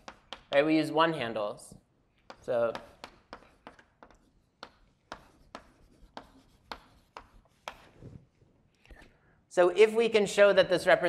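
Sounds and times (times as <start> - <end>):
chalk writing on blackboard: 0.0 - 0.6, 2.2 - 8.3.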